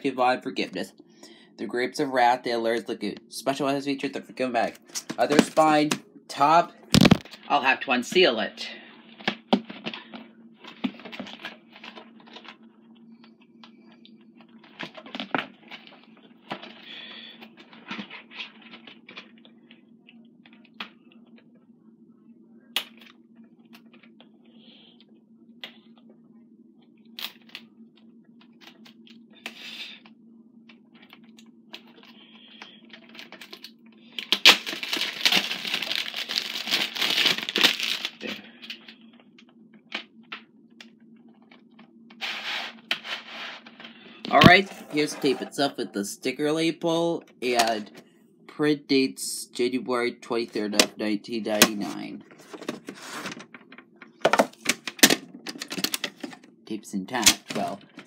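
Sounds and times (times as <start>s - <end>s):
low steady hum: 0.0s - 58.0s
plastic shrink-wrap crinkling: 9.1s - 12.7s, 30.9s - 39.2s
plastic wrap tearing: 33.1s - 38.3s.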